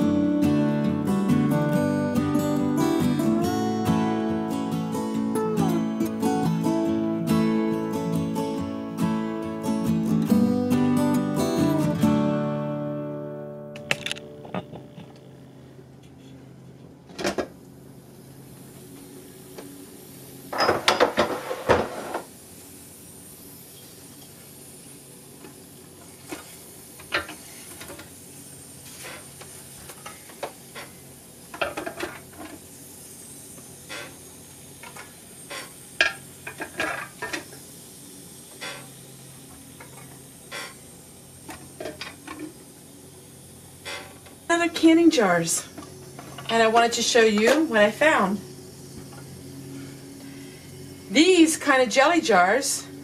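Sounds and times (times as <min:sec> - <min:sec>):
faint steady hiss: 0:17.7 - 0:53.0.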